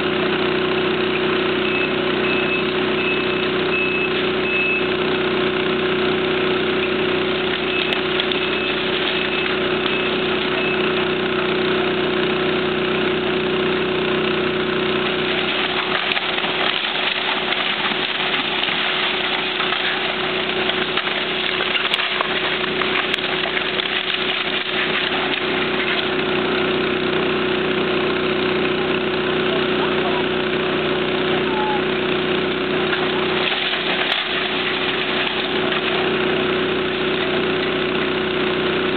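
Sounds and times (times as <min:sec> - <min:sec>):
diesel excavator engine running: 0:00.0 - 0:38.9
steady alarm beeps: 0:01.7 - 0:04.9
debris crunching and cracking: 0:06.6 - 0:11.2, 0:14.9 - 0:26.9, 0:32.6 - 0:38.1.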